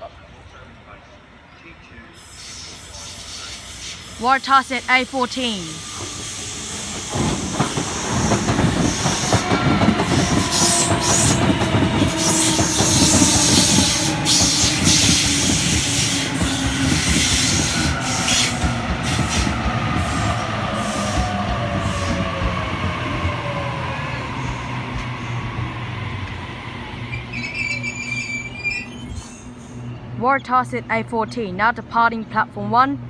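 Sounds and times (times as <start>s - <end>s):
train wheels clattering over track: 6.1s - 23.0s.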